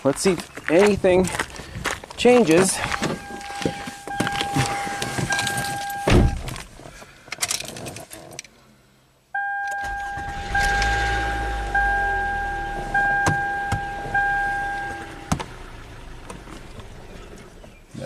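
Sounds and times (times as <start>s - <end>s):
dashboard warning chime: 2.8s - 6.4s, 9.4s - 15.3s
two-tone dash chime: 3.0s - 6.2s, 9.4s - 15.3s
car door shutting thump: 6.0s - 6.6s, 13.2s - 14.2s
car engine starting rumble: 9.8s - 18.0s.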